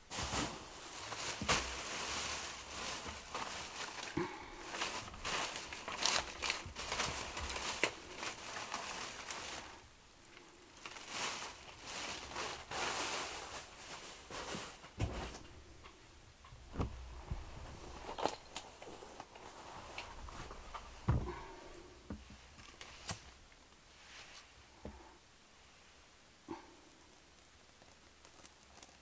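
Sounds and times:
bag rustling and crackling: 0:00.0 - 0:23.4, 0:27.1 - 0:29.0
dull knocks: 0:21.0 - 0:21.4.

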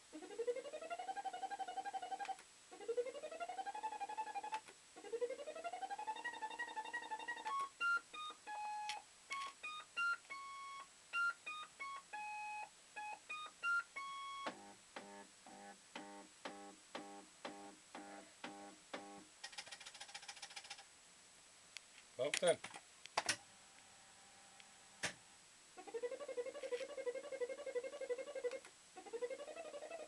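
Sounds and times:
fruit machine electronic sounds: 0:00.2 - 0:19.3, 0:25.8 - 0:30.0.

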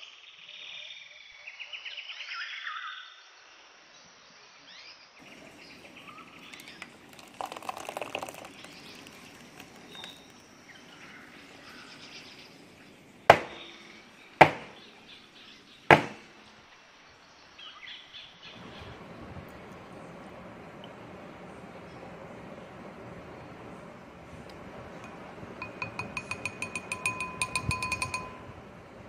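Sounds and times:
birds chirping faintly: 0:05.2 - 0:29.0
aluminium baking pan knocked on worktop: 0:14.4 - 0:14.8, 0:15.9 - 0:16.2.

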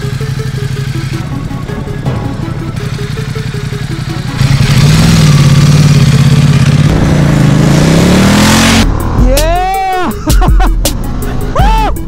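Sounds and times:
motorcycle engine passing by: 0:02.4 - 0:09.2.

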